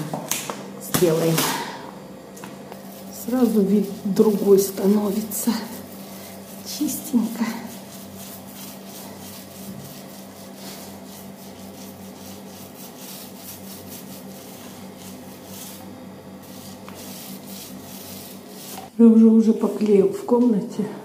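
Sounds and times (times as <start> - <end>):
paint roller rubbing on door: 2.8 - 18.9.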